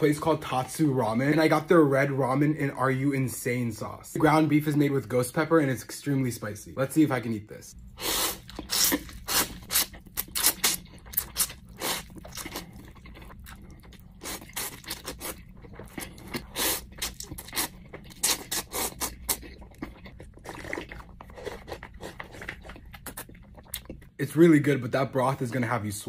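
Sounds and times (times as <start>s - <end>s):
person chewing: 7.8s - 24.1s
person slurping noodles: 8.0s - 12.9s, 16.3s - 19.4s.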